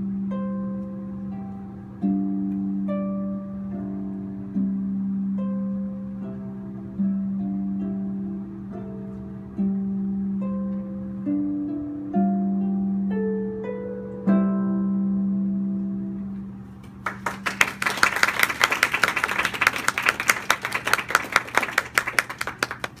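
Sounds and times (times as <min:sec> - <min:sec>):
harp playing: 0:00.0 - 0:23.0
audience applauding: 0:17.0 - 0:23.0.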